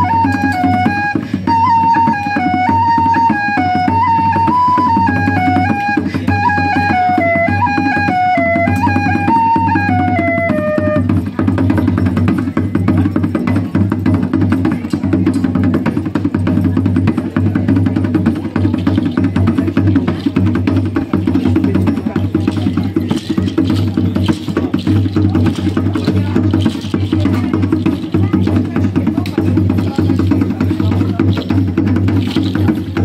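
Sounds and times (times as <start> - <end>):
high melody: 0.0 - 11.2
hand-drum percussion: 0.0 - 33.0.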